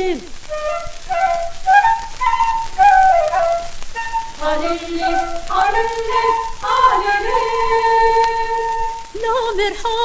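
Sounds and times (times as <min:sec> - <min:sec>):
shepherd's flute melody: 0:00.0 - 0:09.4
person singing: 0:02.8 - 0:10.0.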